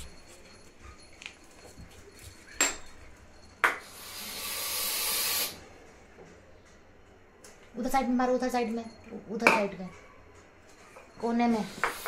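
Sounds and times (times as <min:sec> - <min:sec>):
steady hiss: 0:03.8 - 0:05.6.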